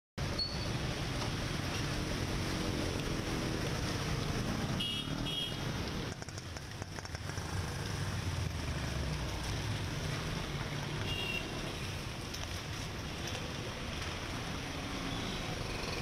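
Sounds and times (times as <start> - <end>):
vehicle engines running: 0.9 - 16.0.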